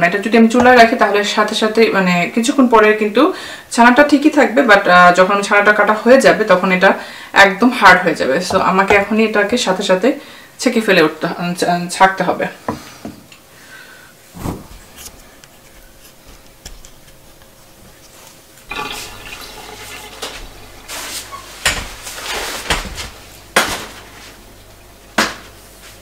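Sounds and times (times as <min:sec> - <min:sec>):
water running into metal sink: 0:18.7 - 0:23.0.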